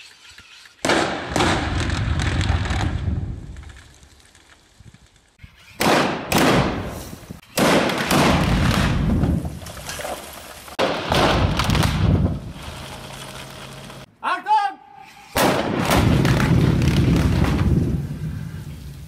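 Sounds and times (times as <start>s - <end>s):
explosive blast bangs: 10.8s - 12.4s, 15.4s - 18.2s
rumbling and rattling: 15.8s - 18.8s.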